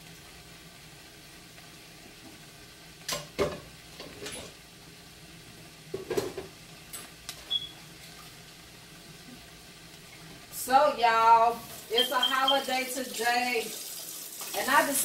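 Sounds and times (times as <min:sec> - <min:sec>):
cabbage sizzling in skillet: 0:00.0 - 0:15.0
kitchen knocks and clatters: 0:03.1 - 0:04.6, 0:05.9 - 0:07.1.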